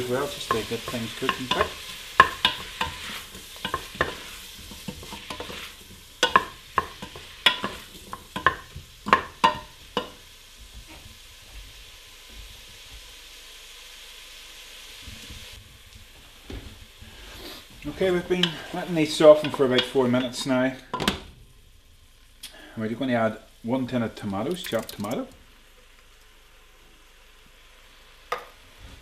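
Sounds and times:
wooden spoon knocking metal pot: 0:00.0 - 0:05.6, 0:06.2 - 0:10.2, 0:19.3 - 0:21.2
vegetables sizzling in oil: 0:00.0 - 0:29.0.

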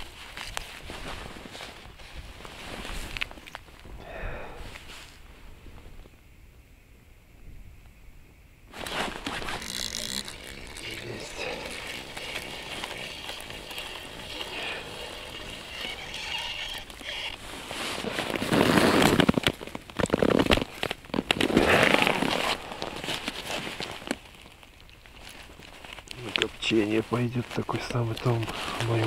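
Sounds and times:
rustling with sharp clicks: 0:08.7 - 0:29.0
fishing reel clicking: 0:09.6 - 0:16.9.

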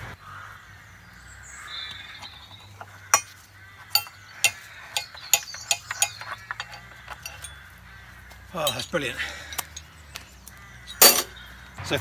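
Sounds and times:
metallic clinks of metal on metal: 0:03.1 - 0:07.6, 0:11.0 - 0:11.3.

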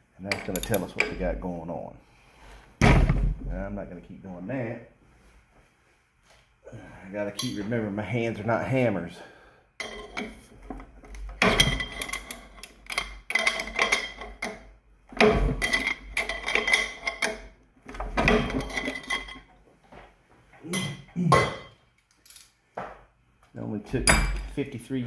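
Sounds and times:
wrench clinking on metal caps: 0:00.3 - 0:01.2, 0:09.8 - 0:10.4, 0:11.0 - 0:17.5, 0:18.3 - 0:19.5, 0:20.7 - 0:22.6.

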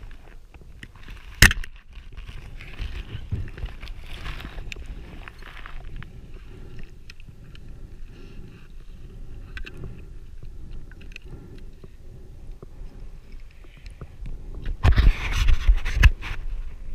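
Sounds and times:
faint clicks: 0:09.1 - 0:14.8.

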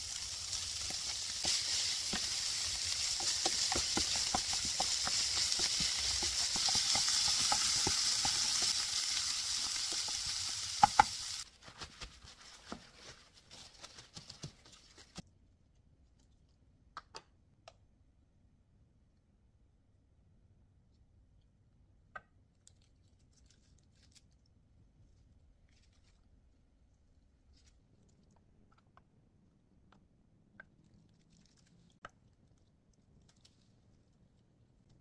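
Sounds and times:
meat sizzling in a frying pan: 0:00.0 - 0:11.5
wooden spatula scraping: 0:00.0 - 0:13.6.

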